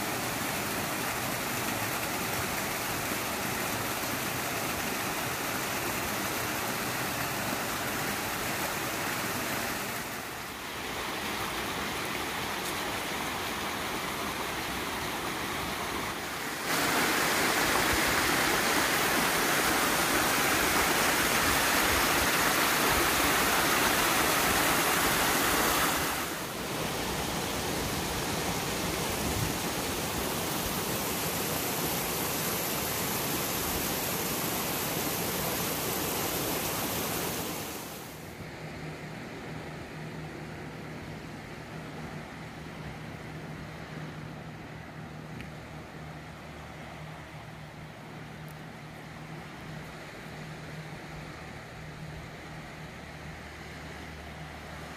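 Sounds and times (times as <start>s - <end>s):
stream running over stones: 0.0s - 38.2s
waterfall splashing into pool: 0.0s - 38.2s.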